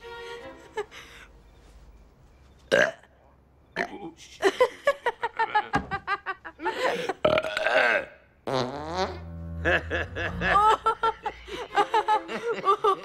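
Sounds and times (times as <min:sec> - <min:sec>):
people laughing: 0:04.4 - 0:07.2, 0:09.6 - 0:13.0
long low fart: 0:08.5 - 0:10.8.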